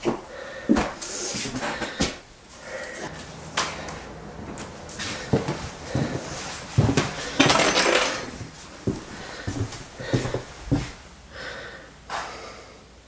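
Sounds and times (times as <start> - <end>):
rattling clatter: 6.7 - 8.4
knocks and clinks of hard objects: 7.0 - 8.4.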